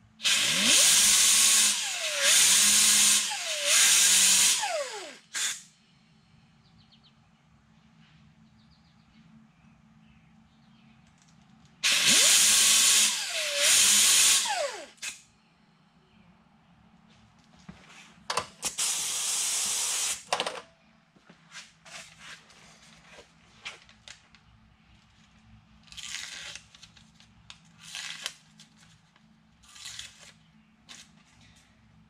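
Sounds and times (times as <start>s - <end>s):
pneumatic grinder whining: 0.2s - 5.6s, 11.8s - 15.2s, 18.7s - 20.3s.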